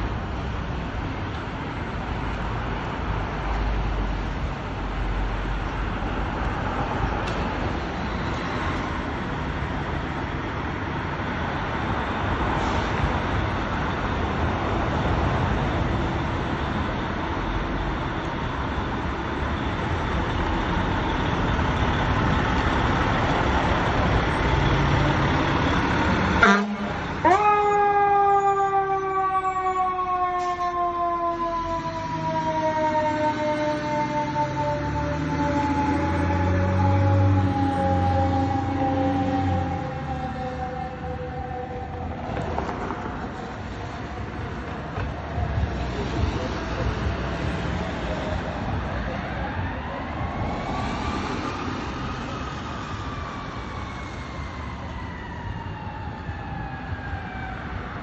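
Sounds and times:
siren with falling pitch: 26.4 - 42.4, 49.1 - 58.0.

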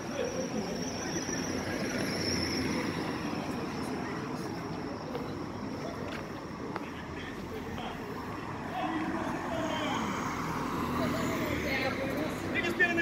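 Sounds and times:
vehicle high-pitched squeal: 0.0 - 4.5
street traffic noise: 0.0 - 13.0.

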